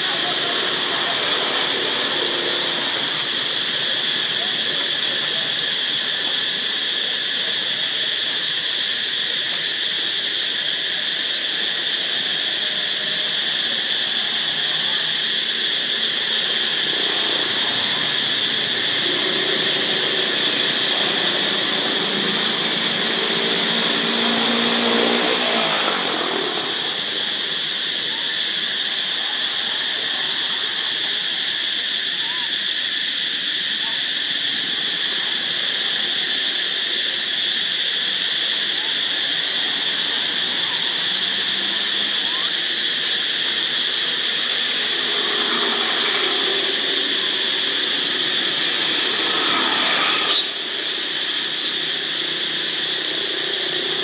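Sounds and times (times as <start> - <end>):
insect chorus drone: 0.0 - 54.0
vehicle engine passing: 17.1 - 27.2, 44.9 - 54.0.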